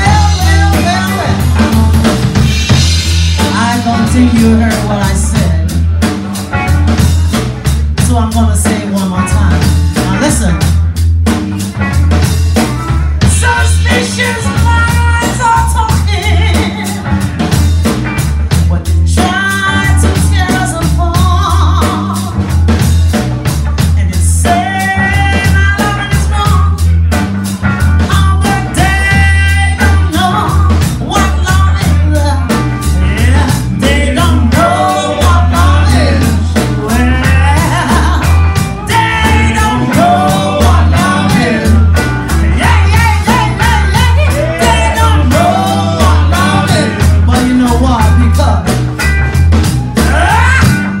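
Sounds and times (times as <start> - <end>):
woman singing into microphone: 0.0 - 2.2, 13.2 - 17.1, 18.9 - 22.4, 28.1 - 41.8, 42.5 - 47.0
bass guitar: 0.0 - 51.0
drum kit beat: 0.0 - 51.0
electric guitar: 0.0 - 51.0.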